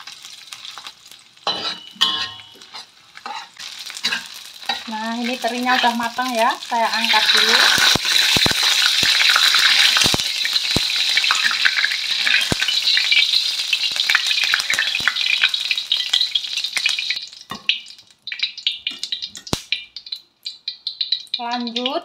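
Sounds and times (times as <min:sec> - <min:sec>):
oil sizzling in wok: 0:00.0 - 0:22.0
metal utensils clinking on wok: 0:01.4 - 0:06.1.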